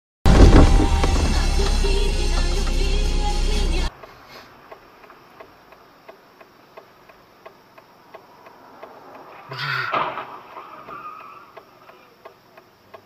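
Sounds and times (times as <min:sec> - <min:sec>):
music: 0:00.3 - 0:03.9
car turn signal clicking: 0:04.6 - 0:09.3, 0:10.1 - 0:13.0.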